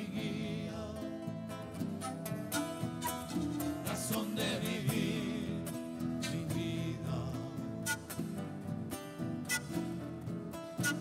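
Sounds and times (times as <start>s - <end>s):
acoustic guitars: 0.0s - 11.0s
pan pipes: 1.8s - 4.2s, 7.6s - 8.4s, 9.4s - 10.0s, 10.6s - 11.0s.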